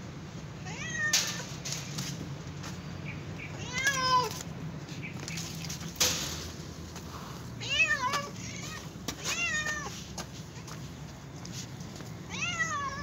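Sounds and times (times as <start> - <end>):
kittens meowing: 3.4 - 4.4.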